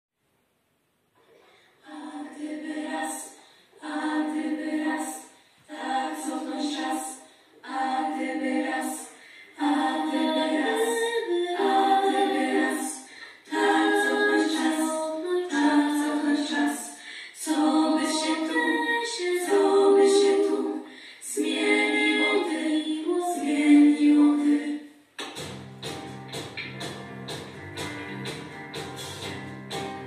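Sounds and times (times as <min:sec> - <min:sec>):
choir singing a cappella: 0:01.8 - 0:25.1.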